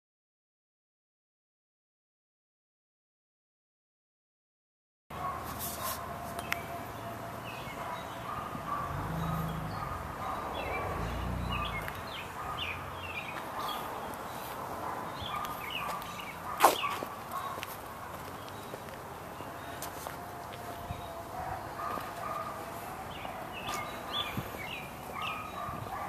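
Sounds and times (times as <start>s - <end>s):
birds chirping: 5.2s - 26.0s.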